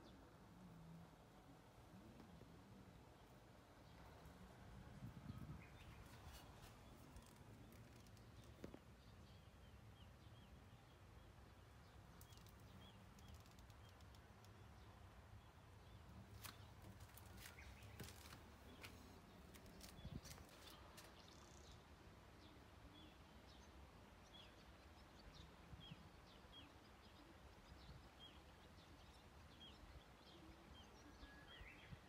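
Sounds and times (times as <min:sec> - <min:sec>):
faint bird chirps: 0:25.8 - 0:32.0.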